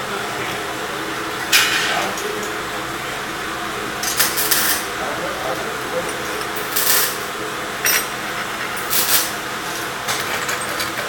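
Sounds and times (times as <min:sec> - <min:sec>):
steady shop hum: 0:00.0 - 0:11.0
metal parts clinking: 0:06.1 - 0:11.0.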